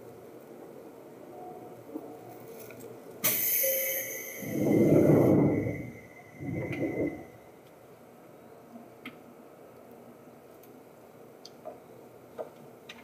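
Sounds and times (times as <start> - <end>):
faint low hum: 4.4 - 7.7
faint ticks and clicks: 9.0 - 10.8.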